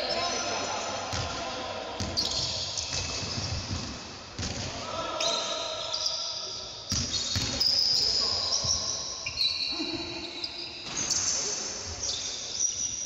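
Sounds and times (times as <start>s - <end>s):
sneakers squeaking: 0.0s - 1.4s, 2.0s - 13.0s
basketball bouncing: 2.0s - 4.7s, 6.9s - 7.6s.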